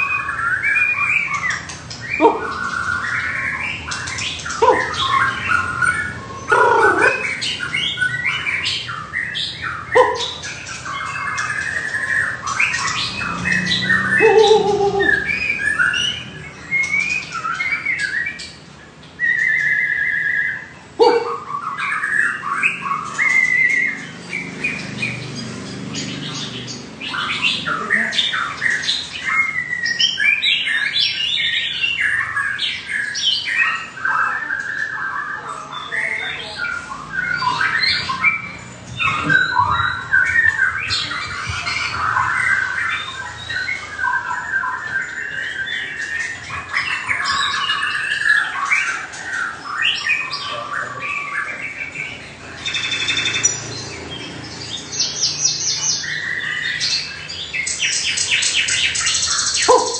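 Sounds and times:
birds singing: 0:00.0 - 0:59.9.

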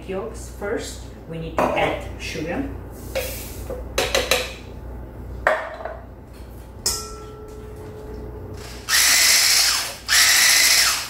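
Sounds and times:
metal kitchenware knocks: 0:04.0 - 0:04.6, 0:06.9 - 0:07.9.

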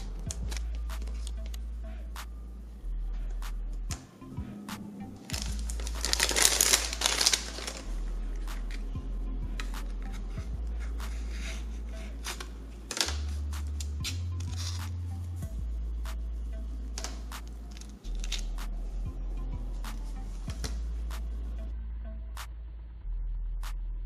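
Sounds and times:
background music with bass line: 0:00.0 - 0:24.0
wrapper tearing and crinkling: 0:05.3 - 0:07.9, 0:17.7 - 0:18.5.

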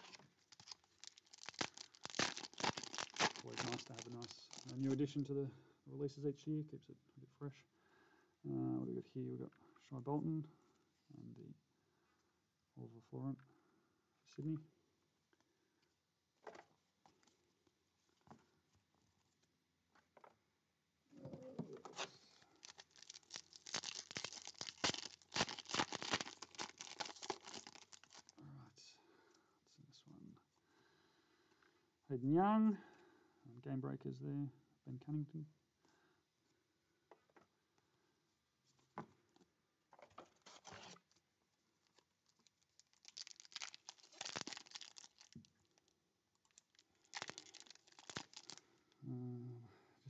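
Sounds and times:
foil wrapper tearing and crinkling: 0:00.0 - 0:05.0, 0:22.3 - 0:28.3, 0:41.8 - 0:48.6.

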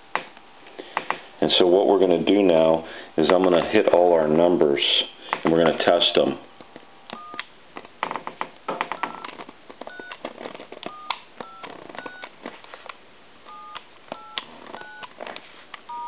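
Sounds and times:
keypad clicks: 0:08.8 - 0:12.3, 0:13.5 - 0:15.2
telephone keypad dual-tone beeps: 0:10.9 - 0:12.2, 0:13.5 - 0:15.1.

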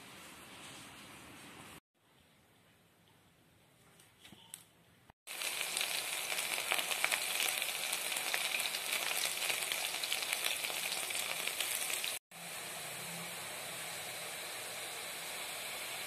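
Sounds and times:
batter sizzling in hot oil: 0:05.3 - 0:16.0.

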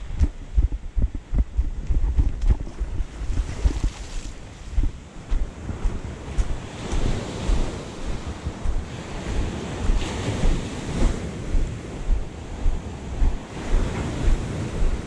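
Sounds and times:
wind buffeting microphone: 0:00.0 - 0:15.0
sea waves washing in: 0:03.1 - 0:15.0.

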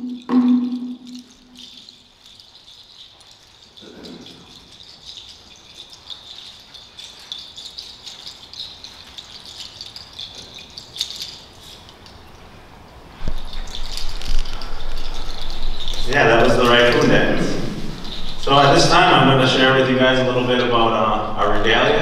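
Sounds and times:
small rattles jingling: 0:00.0 - 0:22.0.

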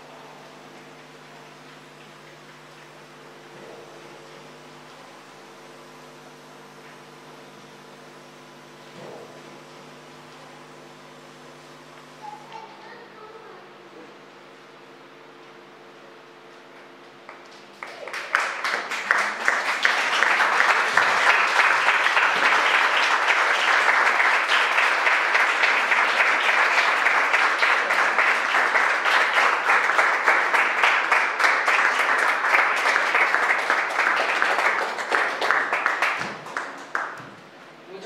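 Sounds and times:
audience clapping: 0:17.2 - 0:37.6.

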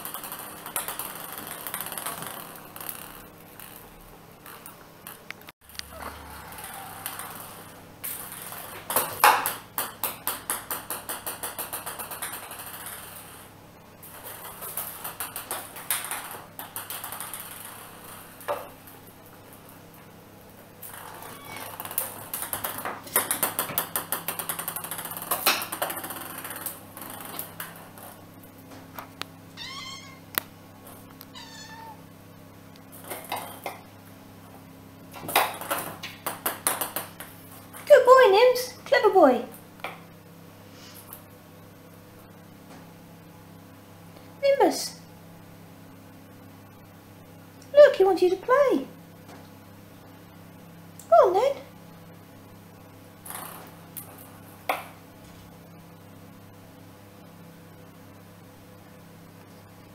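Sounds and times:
kitten mewing: 0:29.6 - 0:30.3, 0:31.4 - 0:32.0.

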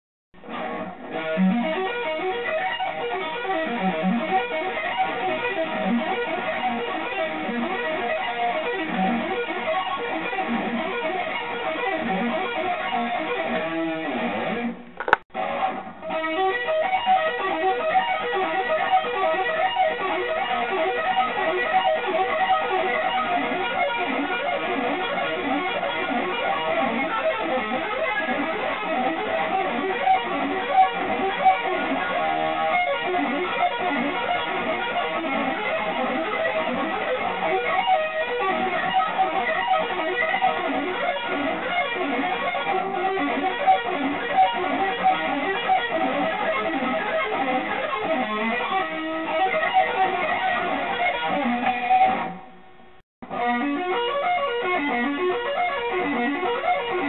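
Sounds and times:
electric guitar arpeggio runs: 0:00.4 - 0:57.0
click: 0:14.8 - 0:15.2.

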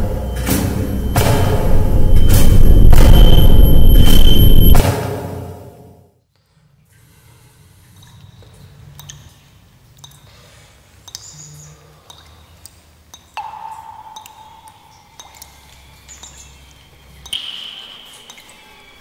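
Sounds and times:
eerie ringing chime tones: 0:00.0 - 0:04.8
low steady hum: 0:00.0 - 0:04.8.

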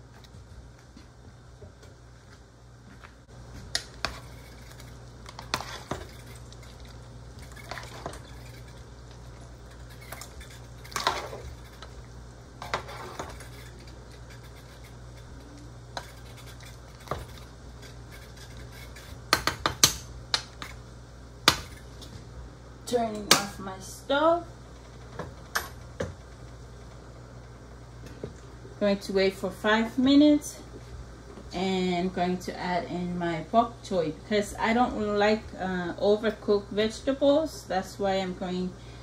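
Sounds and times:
low steady hum: 0:00.0 - 0:39.0
ladle scraping and knocking pot: 0:04.0 - 0:06.8, 0:07.4 - 0:08.9, 0:09.7 - 0:12.0, 0:12.6 - 0:15.4.

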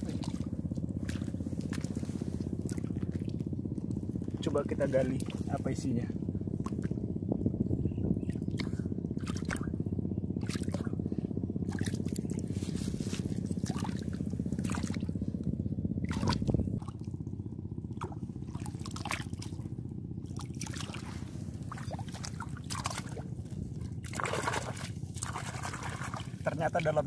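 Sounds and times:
small splashes and drips: 0:00.0 - 0:04.4, 0:08.3 - 0:09.7, 0:10.4 - 0:10.9, 0:13.5 - 0:15.1, 0:16.0 - 0:17.1, 0:17.9 - 0:27.0
low rumble: 0:00.0 - 0:27.0.

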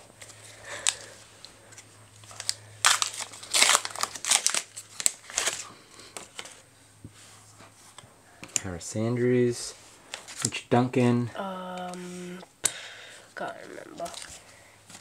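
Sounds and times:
wrapper crinkling and tearing: 0:02.2 - 0:06.6, 0:13.6 - 0:15.0.

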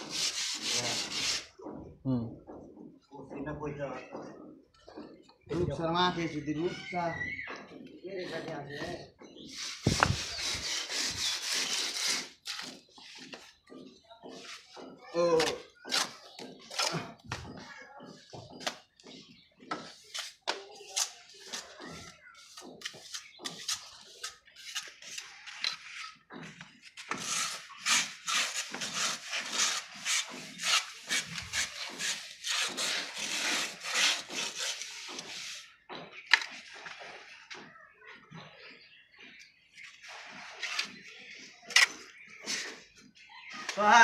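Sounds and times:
plastering tools scraping wall: 0:00.0 - 0:01.8, 0:08.2 - 0:37.4.

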